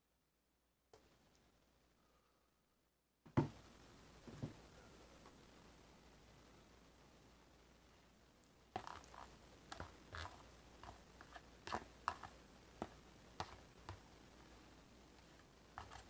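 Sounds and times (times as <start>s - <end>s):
spoon scraping plastic container: 8.8s - 14.0s, 15.8s - 16.0s.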